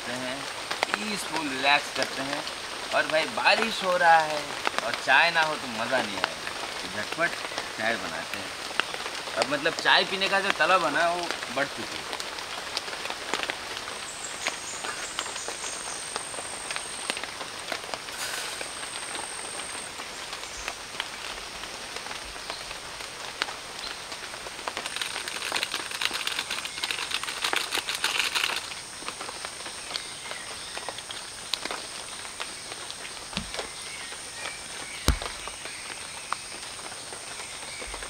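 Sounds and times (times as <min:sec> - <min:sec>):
rain on forest foliage: 0:00.0 - 0:38.0.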